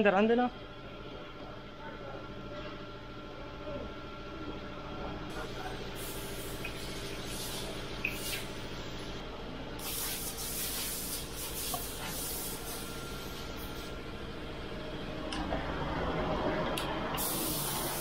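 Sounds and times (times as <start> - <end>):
low machine hum: 0.0 - 18.0
brief hissing: 6.0 - 8.5.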